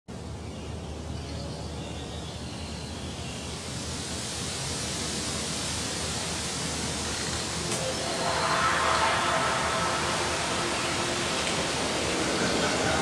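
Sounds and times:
jet aircraft rumble: 0:03.6 - 0:13.0.

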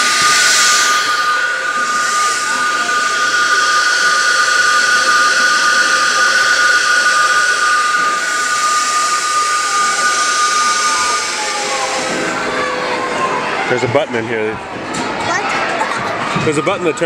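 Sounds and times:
toy train air horn whistle: 0:00.0 - 0:13.0.

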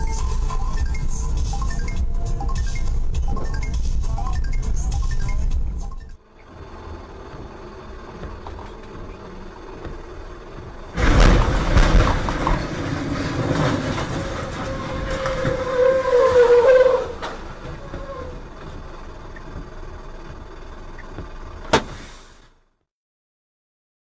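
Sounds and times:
metal grinding and scraping: 0:10.9 - 0:18.6
loud crash bang: 0:11.0 - 0:17.6
wavering high squeal: 0:14.1 - 0:18.5.

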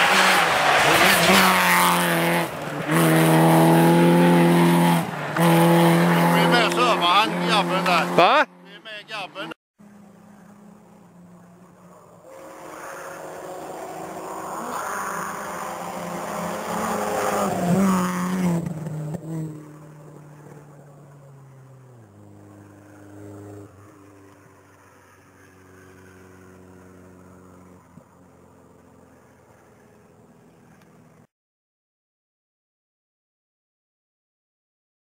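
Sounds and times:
rally car engine passing: 0:00.0 - 0:31.3.

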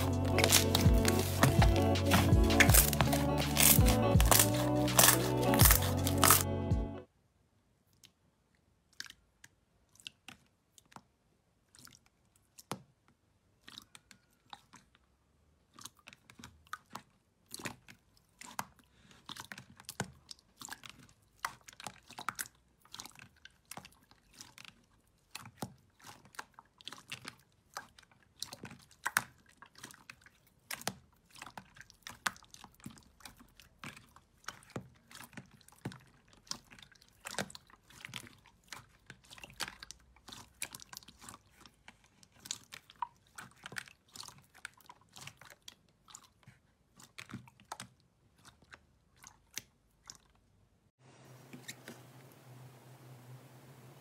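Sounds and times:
slime clicking and popping: 0:00.0 - 0:06.5.

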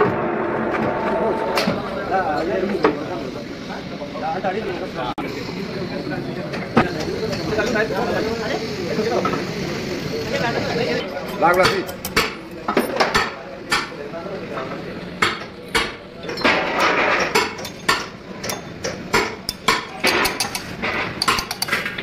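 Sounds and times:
people talking: 0:00.8 - 0:16.9
metal tools knocking and clinking: 0:16.2 - 0:21.9.

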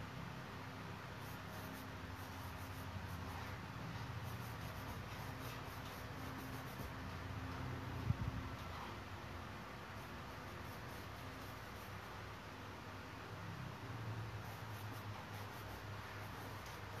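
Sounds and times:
steady low hum: 0:00.0 - 0:17.0
paintbrush stroking canvas: 0:01.2 - 0:07.4, 0:09.9 - 0:12.2, 0:14.3 - 0:17.0.

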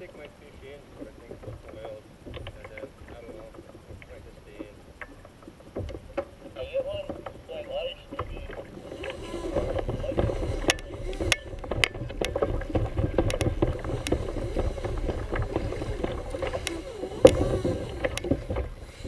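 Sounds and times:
water splashing against kayak hull: 0:00.0 - 0:19.0
wind rumbling on microphone: 0:00.0 - 0:19.0
sharp clicks and knocks: 0:08.1 - 0:19.0.

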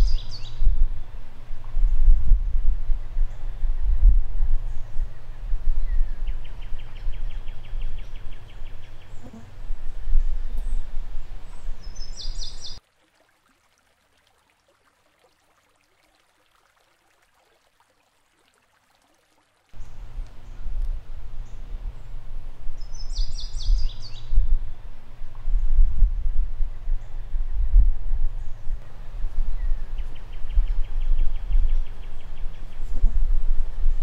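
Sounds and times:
bird chirping: 0:00.0 - 0:00.6, 0:10.4 - 0:12.8, 0:22.8 - 0:24.4
wind rumbling on microphone: 0:00.0 - 0:12.8, 0:19.8 - 0:34.0.

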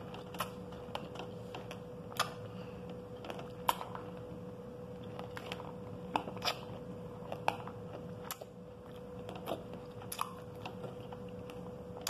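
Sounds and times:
faint steady hum: 0:00.0 - 0:12.0
chewing crunchy seeds: 0:04.9 - 0:12.0.

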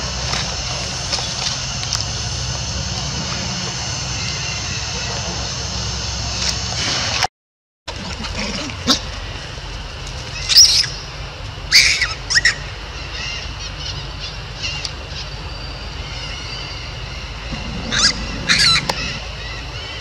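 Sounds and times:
outdoor background: 0:00.0 - 0:07.3, 0:07.9 - 0:20.0
high-pitched animal calls: 0:10.3 - 0:11.1, 0:11.7 - 0:20.0.

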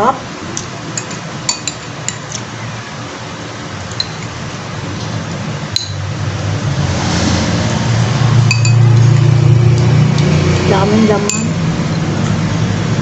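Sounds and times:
spoon clinking on glass bowl: 0:01.0 - 0:02.2, 0:05.8 - 0:06.0, 0:08.5 - 0:08.8, 0:11.2 - 0:11.6
low hum: 0:02.6 - 0:13.0.

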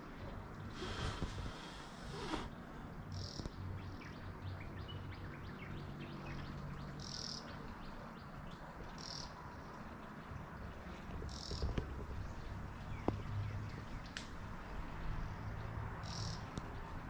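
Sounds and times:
low steady background rumble: 0:00.0 - 0:17.0
birds chirping: 0:00.2 - 0:09.3.

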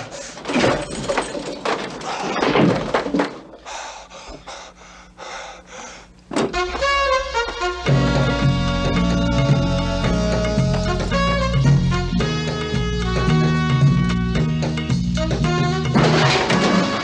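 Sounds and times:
man panting heavily: 0:03.6 - 0:06.3
music: 0:06.4 - 0:17.0.

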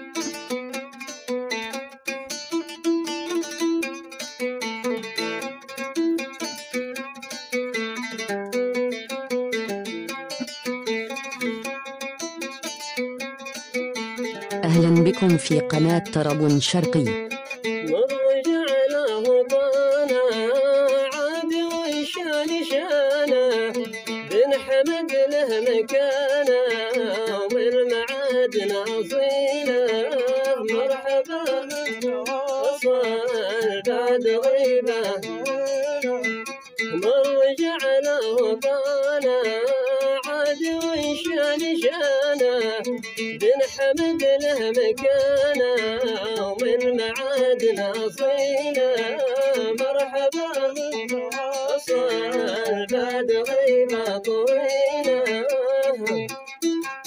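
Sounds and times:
plucked string accompaniment: 0:00.0 - 0:57.0
man singing: 0:14.7 - 0:56.5.

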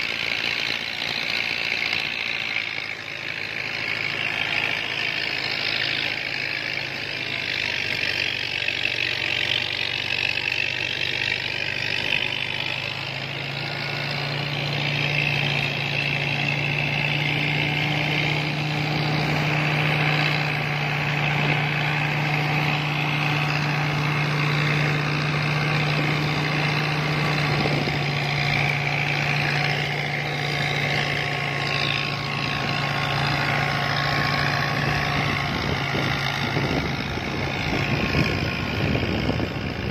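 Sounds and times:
threshing drum whirring: 0:00.0 - 0:39.9
tractor engine humming under load: 0:00.0 - 0:39.9.

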